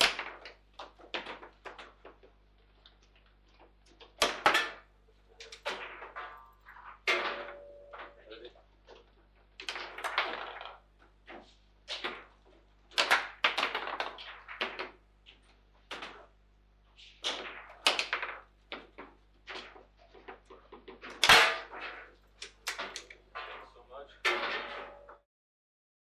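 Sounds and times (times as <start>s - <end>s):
ball slamming into goal: 5.6s - 8.2s, 24.2s - 25.2s
table football ball clacks: 9.6s - 16.3s, 17.1s - 23.3s.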